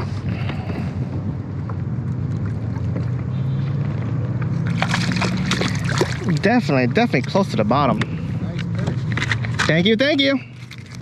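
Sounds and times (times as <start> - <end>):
wind noise on microphone: 0.0 - 3.8
water lapping against hull: 0.0 - 8.6.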